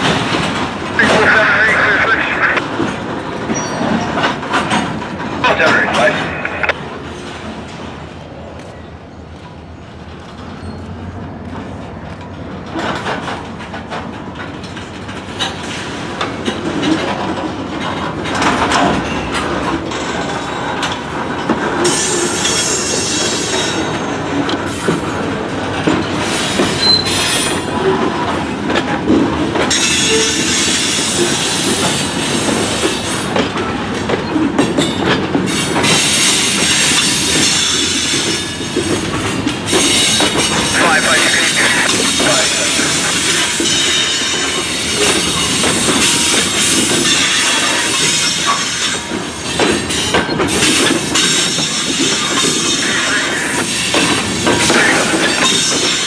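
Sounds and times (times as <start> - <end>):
freight train wheels on rails: 0.0 - 56.0
wheels squealing and screeching: 3.4 - 4.4, 21.8 - 28.0, 29.7 - 33.3.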